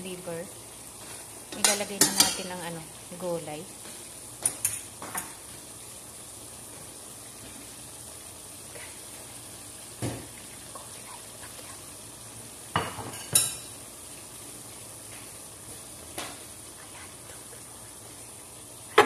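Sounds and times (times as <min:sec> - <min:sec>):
meat sizzling in a pot: 0:00.0 - 0:19.0
metal clinking against a pot: 0:01.5 - 0:02.5.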